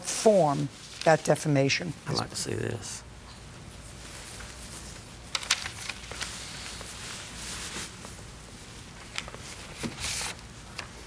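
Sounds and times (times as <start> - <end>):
paper rustling: 4.1 - 8.2, 8.9 - 10.9.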